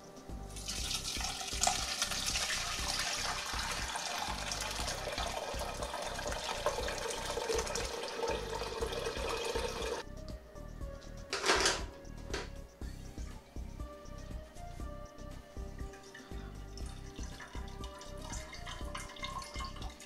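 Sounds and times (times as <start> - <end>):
liquid and pulp pouring through cloth: 0.6 - 10.0.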